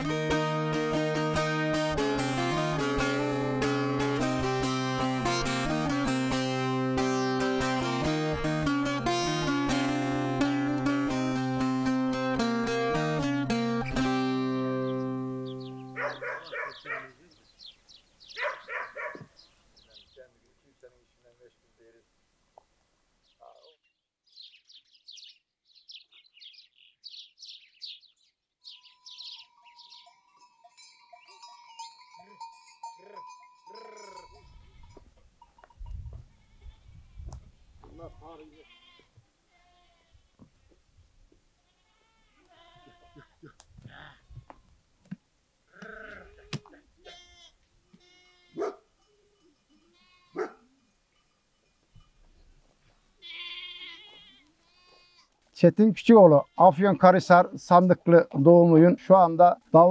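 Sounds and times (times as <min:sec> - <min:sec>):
goats bleating: 0:00.0 - 0:14.1, 0:33.1 - 0:35.0, 0:37.8 - 0:40.3, 0:41.6 - 0:44.6, 0:45.7 - 0:48.8, 0:49.8 - 0:50.6, 0:53.2 - 0:55.4, 0:56.1 - 0:57.4
bird chirps: 0:14.8 - 0:20.4, 0:23.2 - 0:30.3
dog barking: 0:16.0 - 0:17.2, 0:18.4 - 0:19.3, 0:48.6 - 0:48.9, 0:50.3 - 0:50.7
goat neck bells clanking: 0:28.8 - 0:35.9, 0:48.1 - 0:54.1.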